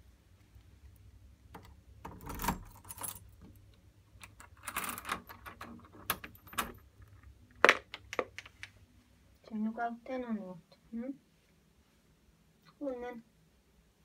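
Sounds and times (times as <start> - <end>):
keys jangling: 2.3 - 3.3.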